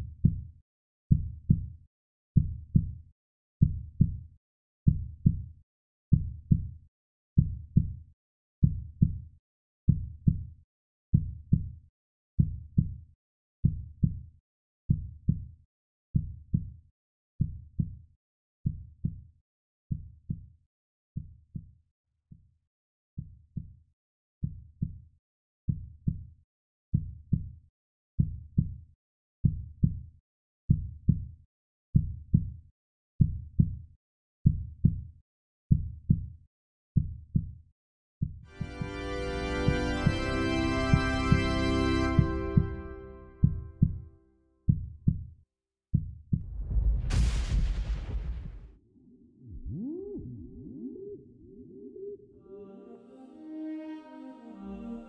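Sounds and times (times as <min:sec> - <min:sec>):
heartbeat double thump: 0:42.2 - 0:44.0, 0:46.3 - 0:48.7.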